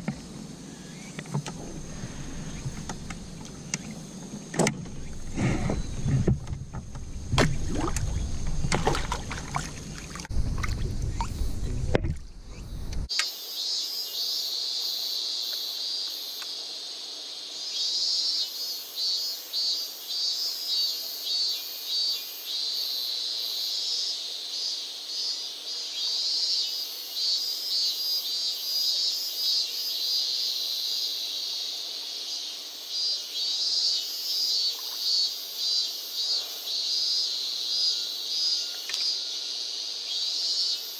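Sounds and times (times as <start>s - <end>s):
insect chirring: 0.0s - 40.9s
microphone handling rumble: 1.3s - 9.4s, 10.3s - 13.1s.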